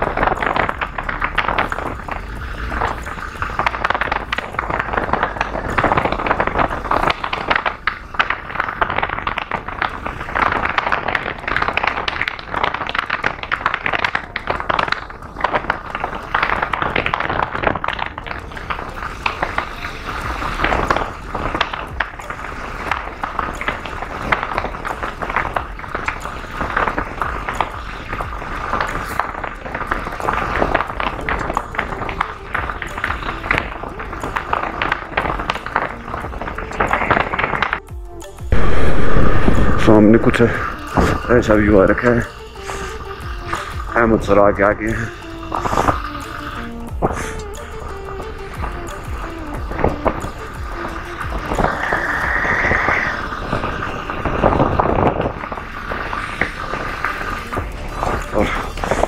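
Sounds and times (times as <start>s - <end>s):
wind rushing over microphone: 48.5s - 59.0s.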